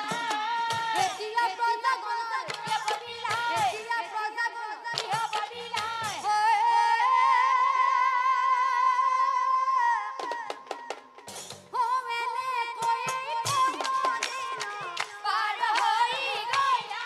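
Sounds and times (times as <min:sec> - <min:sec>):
sharp percussive strikes: 0:00.0 - 0:01.7, 0:02.4 - 0:04.0, 0:04.9 - 0:06.4, 0:10.2 - 0:11.8, 0:12.8 - 0:17.0
woman singing into microphone: 0:00.0 - 0:10.9, 0:11.7 - 0:17.0.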